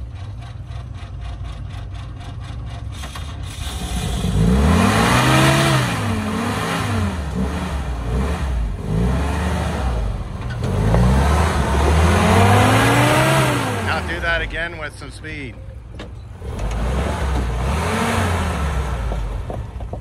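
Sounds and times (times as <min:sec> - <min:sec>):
jeep engine idling and revving: 0:00.0 - 0:20.0.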